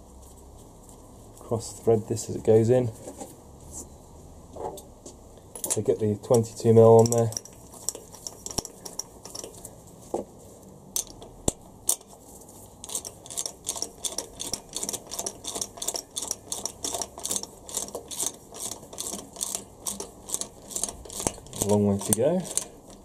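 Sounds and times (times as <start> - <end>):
ratchet wrench clicking: 7.0 - 9.6, 11.0 - 12.1, 12.8 - 23.0.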